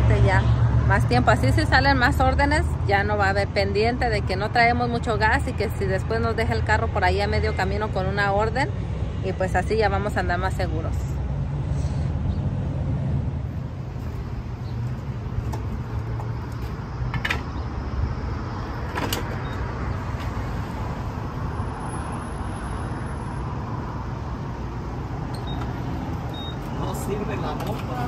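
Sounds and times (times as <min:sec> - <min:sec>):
low rumble of road traffic: 0:00.0 - 0:28.0
fuel pump keypad beeps: 0:25.3 - 0:26.7.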